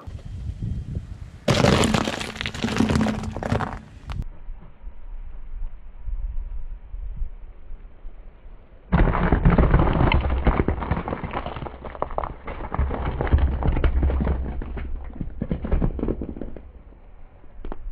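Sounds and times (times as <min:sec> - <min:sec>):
gingerbread crunching under tyre: 0:01.5 - 0:04.2, 0:09.0 - 0:16.9.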